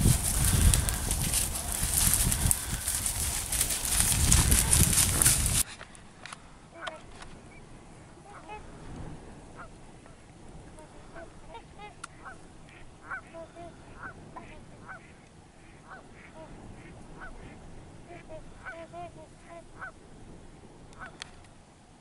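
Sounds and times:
flock of waterfowl calling: 0.0s - 5.6s, 6.7s - 20.0s, 20.9s - 21.4s
low background hiss: 5.8s - 22.0s.

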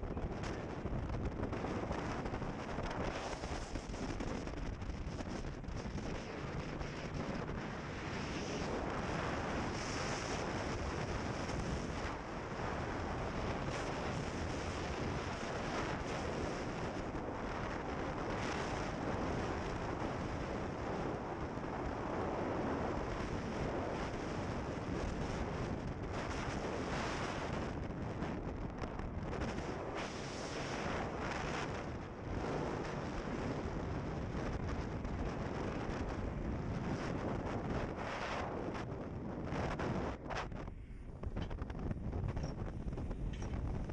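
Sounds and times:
wind buffeting microphone: 0.0s - 43.9s.

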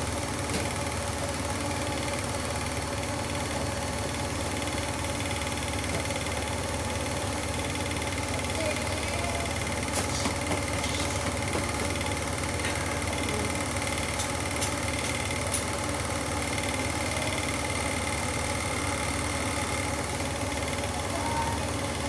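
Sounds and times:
mechanical hum and whir: 0.0s - 22.0s.

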